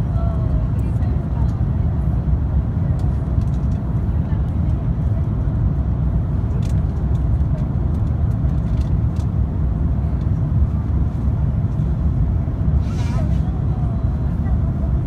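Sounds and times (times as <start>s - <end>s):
airplane cabin engine rumble: 0.0s - 15.0s.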